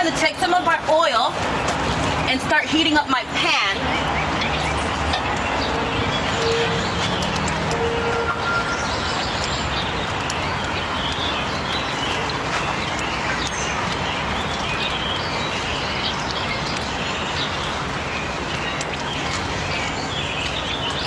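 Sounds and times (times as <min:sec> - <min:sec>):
birds chirping: 0:00.0 - 0:21.0
steady rushing background noise: 0:00.0 - 0:21.0.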